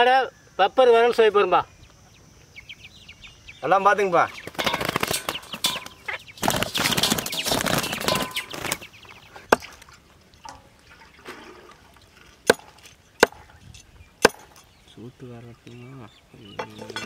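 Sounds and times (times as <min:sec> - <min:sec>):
birds flapping wings: 0:04.2 - 0:09.1.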